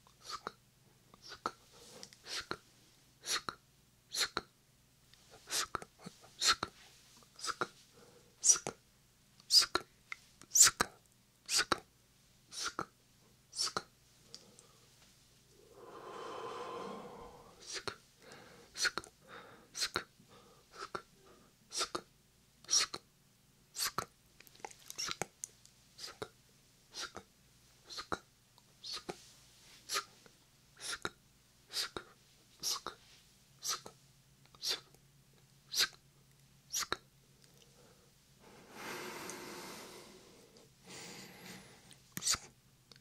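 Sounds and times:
whispered mouth sounds: 0.0 - 0.6, 1.2 - 2.6, 3.2 - 4.5, 5.3 - 6.8, 7.4 - 7.8, 8.4 - 8.8, 9.4 - 11.9, 12.5 - 12.9, 13.5 - 14.7, 17.6 - 18.0, 18.8 - 19.1, 19.8 - 20.1, 20.7 - 21.1, 21.7 - 23.1, 23.8 - 25.3, 26.0 - 29.2, 29.9 - 30.1, 30.8 - 33.0, 33.6 - 35.0, 35.7 - 36.0, 36.7 - 37.8, 42.1 - 43.0
breathy hiss: 15.6 - 21.9, 37.6 - 42.5
small mouth click: 23.8 - 26.3, 36.7 - 37.7, 41.9 - 43.0.

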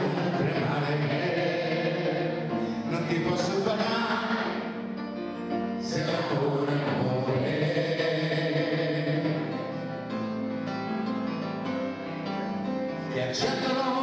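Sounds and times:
man singing into a microphone: 0.0 - 4.8, 5.8 - 10.0, 13.0 - 14.0
crowd singing along: 0.0 - 10.9, 13.1 - 14.0
grand piano accompaniment: 0.0 - 14.0.

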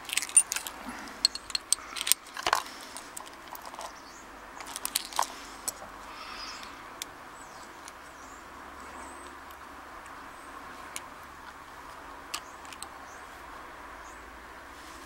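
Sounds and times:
keys jangling against padlock: 0.0 - 4.0, 4.6 - 5.8.

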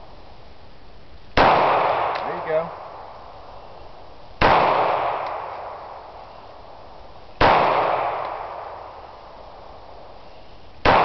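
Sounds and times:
pistol shots with echo: 1.4 - 3.1, 4.4 - 6.0, 7.4 - 9.1.

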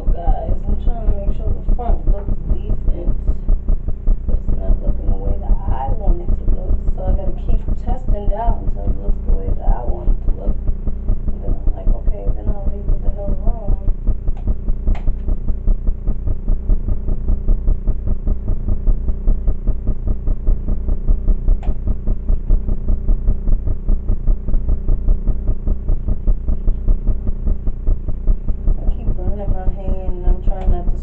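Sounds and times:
pulsing machine hum: 0.0 - 31.0.

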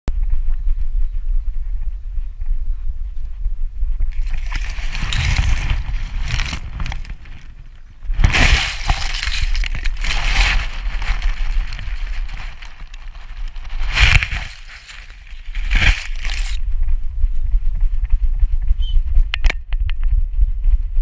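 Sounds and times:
steady low rumble: 0.1 - 21.0
dry grass rustling against camera: 4.0 - 17.5.

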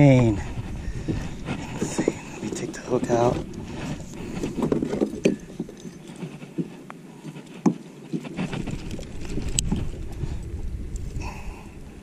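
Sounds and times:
low rumble on microphone: 0.0 - 5.9, 8.4 - 12.0
clicks and knocks of fishing gear: 1.0 - 10.5.

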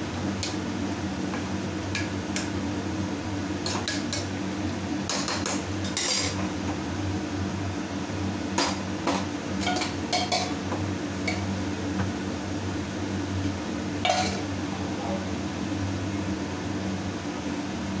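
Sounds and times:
metal utensils clinking: 14.1 - 14.4.

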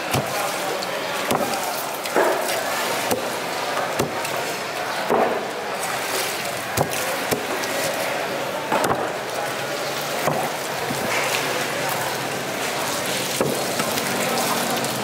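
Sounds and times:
knife chopping on wooden block: 1.3 - 1.6.

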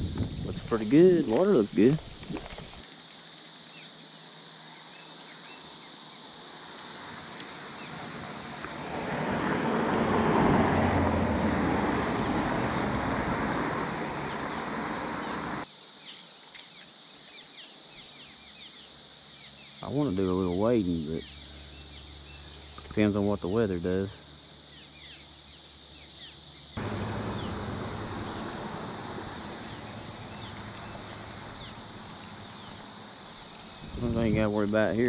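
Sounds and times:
cicada chorus drone: 0.0 - 35.0
vehicle passing: 6.8 - 15.6, 26.8 - 33.3.

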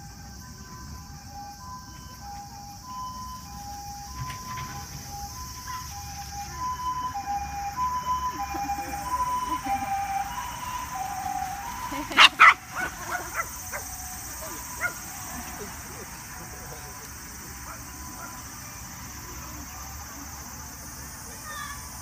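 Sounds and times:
two-tone ambulance siren: 0.0 - 21.2
dog barking: 12.1 - 15.0, 17.7 - 18.4.

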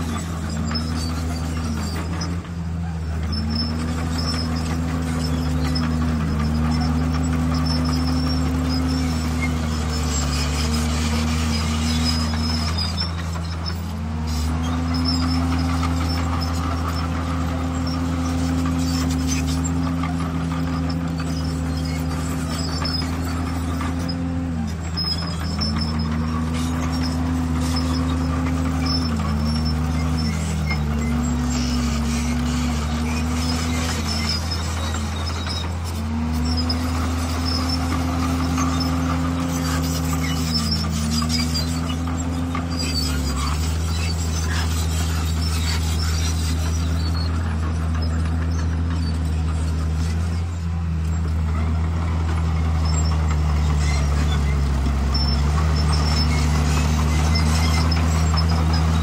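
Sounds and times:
bulldozer diesel engine running: 0.0 - 59.0.

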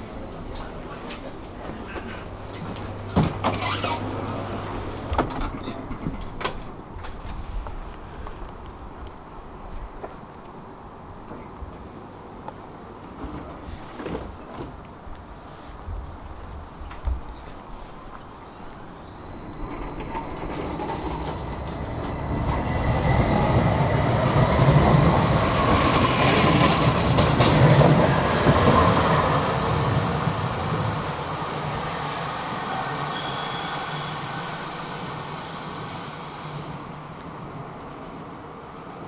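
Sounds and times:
tram rumbling: 0.0 - 10.3, 10.9 - 39.0
wheel squeal: 19.0 - 36.8.

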